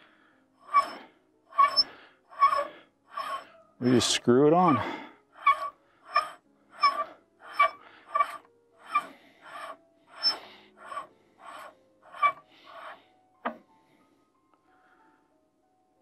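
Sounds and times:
threads rasping as screwed: 0.7 - 4.1, 4.7 - 13.6.

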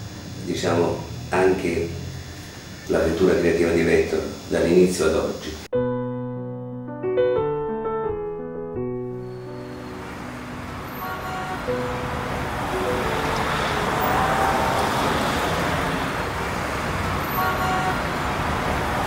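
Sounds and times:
dense background noise: 0.0 - 5.7.

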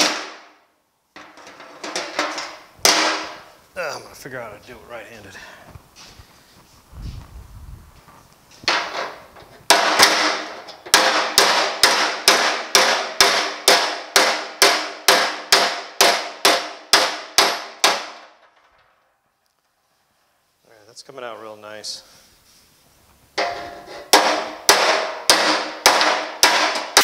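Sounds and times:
hammer striking metal: 8.7 - 18.3, 23.4 - 27.0.

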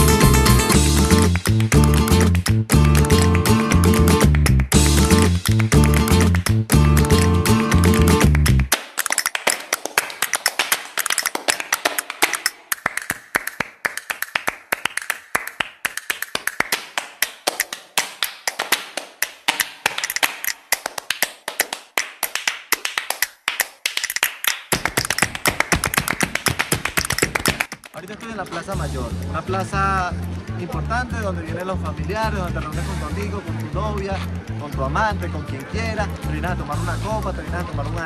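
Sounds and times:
deeper music backing: 0.0 - 8.7, 28.6 - 38.0
flamenco hand claps and taps: 0.5 - 28.5.

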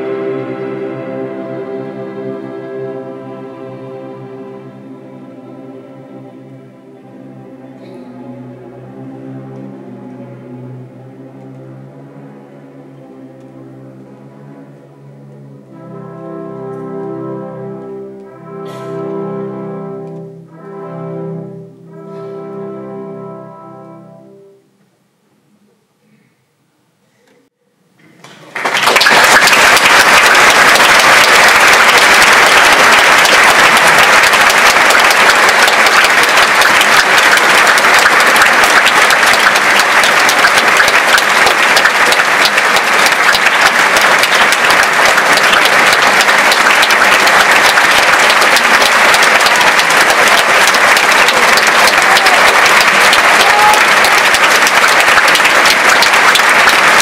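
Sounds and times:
audience applauding: 28.2 - 57.0.

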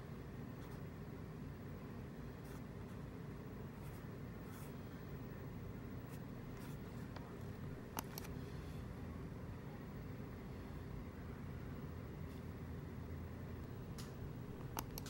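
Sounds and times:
low background noise: 0.0 - 15.0.

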